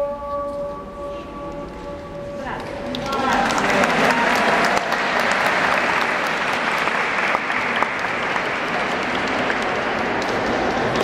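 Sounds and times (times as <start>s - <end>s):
crowd applauding: 2.6s - 11.0s.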